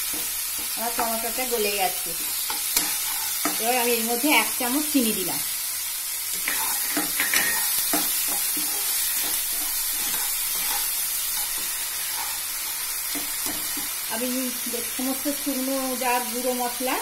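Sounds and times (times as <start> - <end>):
food sizzling in oil: 0.0 - 17.0
spatula scraping pan: 2.1 - 4.1, 6.3 - 14.0.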